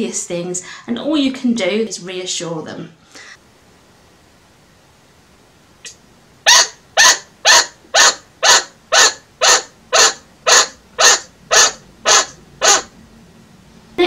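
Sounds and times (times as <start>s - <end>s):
chinchilla barking: 6.4s - 12.9s.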